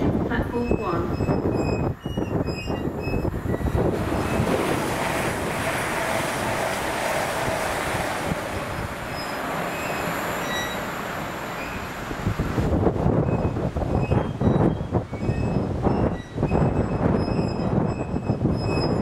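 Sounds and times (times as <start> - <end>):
train passing at speed: 3.2 - 18.0.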